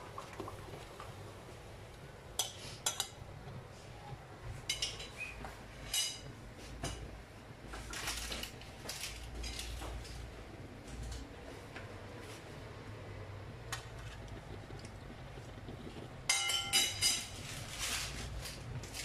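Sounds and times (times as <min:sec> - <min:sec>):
fork clinking against bowl and pan: 0:16.3 - 0:17.3.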